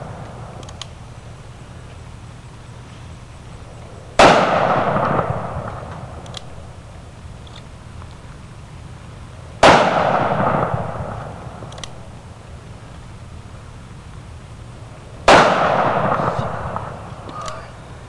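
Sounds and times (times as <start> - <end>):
revolver gunshots with echo: 4.1 - 6.7, 9.6 - 12.1, 15.2 - 17.6.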